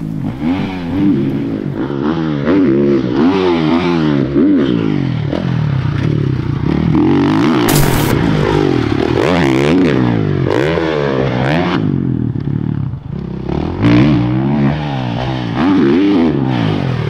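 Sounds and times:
dirt bike engine revving: 7.7s - 8.3s.

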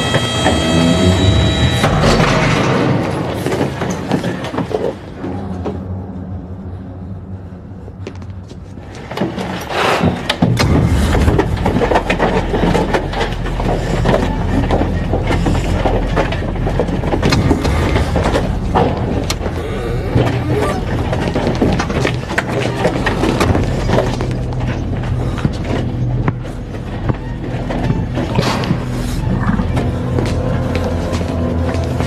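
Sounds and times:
low steady drone: 0.0s - 3.9s, 10.4s - 32.0s
loud deep rumble: 10.5s - 32.0s.

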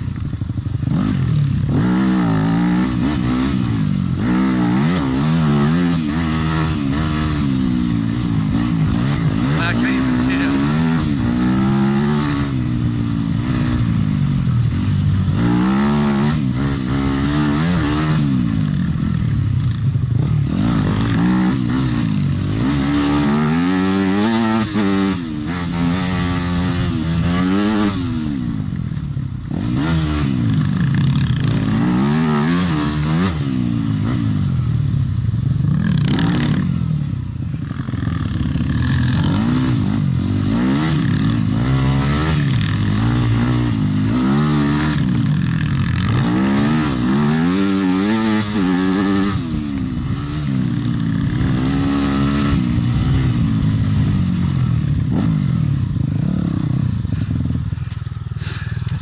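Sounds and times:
dirt bike engine revving: 0.0s - 59.0s.

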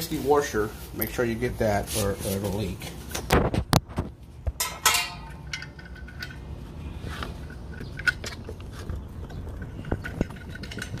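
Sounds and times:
sharp metal knocks: 4.6s - 6.0s.

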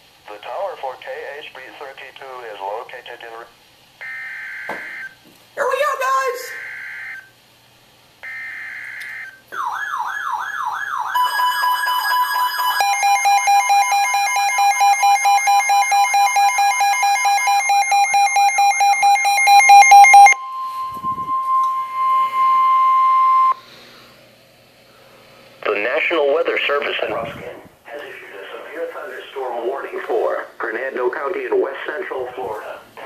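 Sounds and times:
warbling siren with pulsing beeps: 4.0s - 5.1s, 6.5s - 7.3s, 8.2s - 23.6s
steady high tone: 11.1s - 23.6s.

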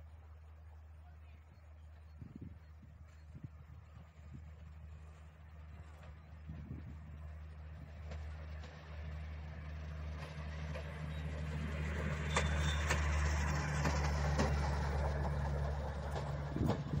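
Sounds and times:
rail trolley engine running: 0.0s - 17.0s
wheels clicking over rail joints: 4.0s - 17.0s.

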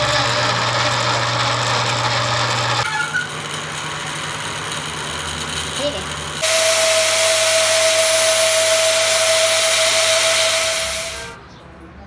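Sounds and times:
angle grinder grinding steel: 0.0s - 11.4s
motor whine: 3.4s - 11.4s.

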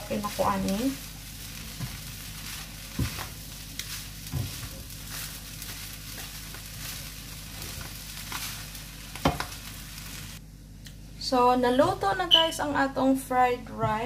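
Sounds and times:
rice sizzling in frying pan: 0.0s - 10.4s
spatulas scraping pan: 1.6s - 9.6s
spatula knocking on pan: 2.9s - 3.3s, 4.2s - 4.8s, 9.2s - 9.6s.

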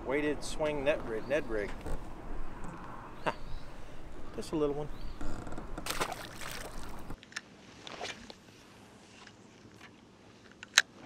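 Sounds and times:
fish splashing into water: 5.8s - 7.2s.

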